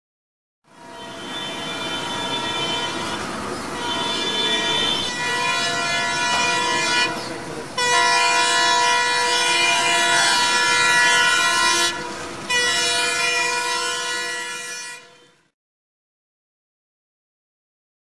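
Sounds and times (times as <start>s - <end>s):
train rumble: 0.7s - 15.1s
locomotive horn blasts: 0.7s - 15.5s.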